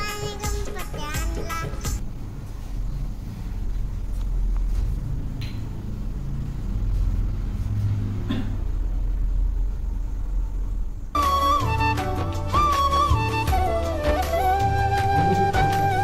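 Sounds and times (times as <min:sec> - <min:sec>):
low steady rumble: 0:02.0 - 0:11.3.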